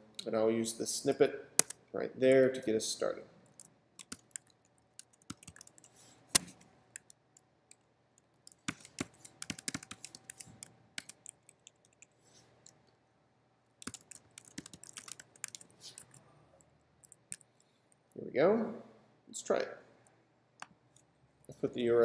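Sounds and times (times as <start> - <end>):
typing on keyboard: 3.5 - 7.2, 8.5 - 12.8, 13.8 - 16.2, 17.0 - 17.5.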